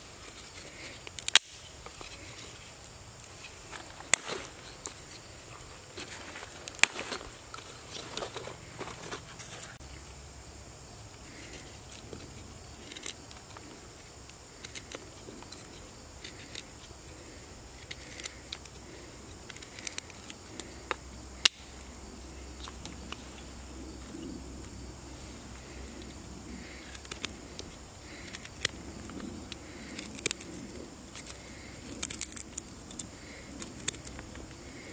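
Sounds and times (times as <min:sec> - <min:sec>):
knife carving dry sticks: 0:00.1 - 0:05.3, 0:11.3 - 0:23.4, 0:25.5 - 0:34.9.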